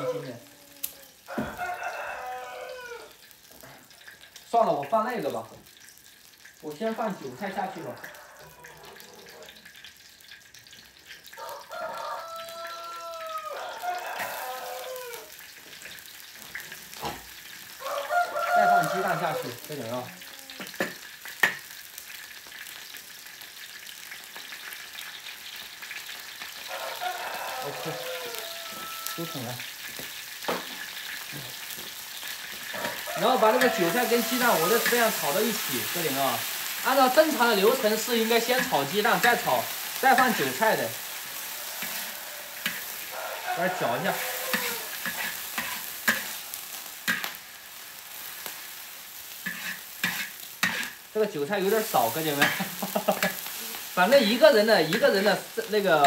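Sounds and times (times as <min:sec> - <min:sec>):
chives sizzling in oil: 0:00.0 - 0:56.0
metal spatula scraping a wok: 0:32.3 - 0:36.8, 0:38.4 - 0:43.1, 0:43.7 - 0:47.4, 0:49.2 - 0:51.1, 0:51.7 - 0:55.2.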